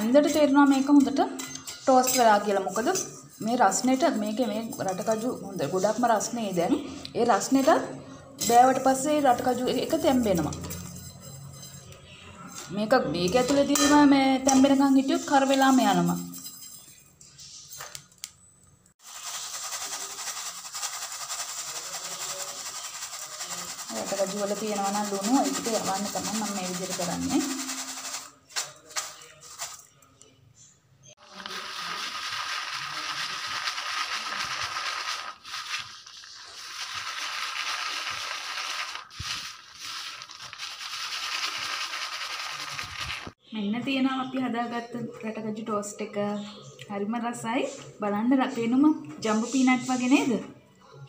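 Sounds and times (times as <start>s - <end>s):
peanuts rattling in plastic sieve: 19.0s - 29.9s, 31.3s - 43.4s.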